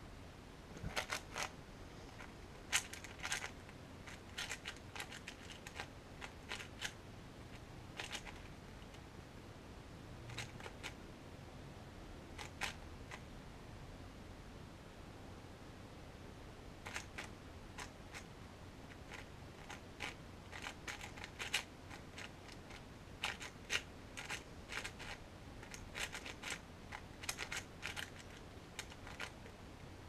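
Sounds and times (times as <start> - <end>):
puzzle cube clicking as turned: 2.7 - 7.0, 8.0 - 8.5, 10.3 - 11.0, 16.9 - 18.3, 18.9 - 29.5.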